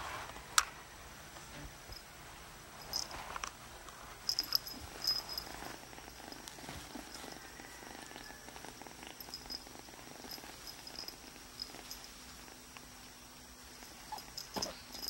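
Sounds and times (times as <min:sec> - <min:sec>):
kitten purring: 0:04.2 - 0:15.0.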